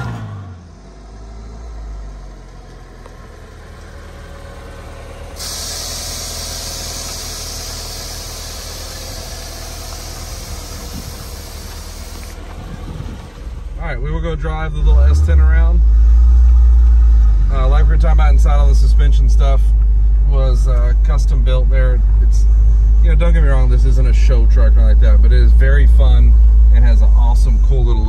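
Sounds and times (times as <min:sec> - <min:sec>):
truck engine running at low revs: 0:00.0 - 0:28.0.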